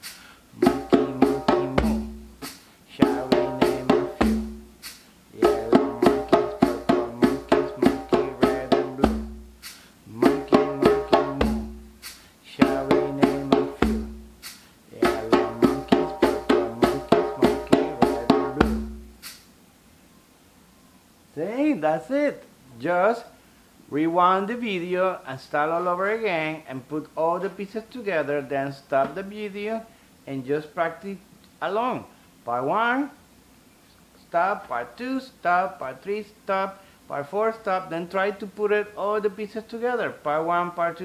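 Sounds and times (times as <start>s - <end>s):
djembe hand drumming: 0.6s - 19.3s
pitched backing melody: 0.6s - 19.4s.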